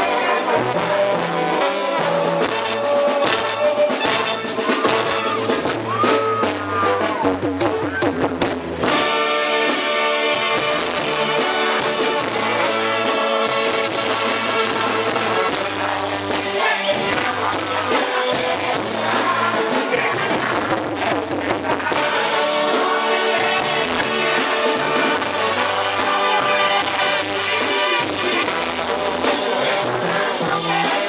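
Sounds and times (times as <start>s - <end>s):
brass band playing: 0.0s - 31.0s
man singing: 13.9s - 31.0s.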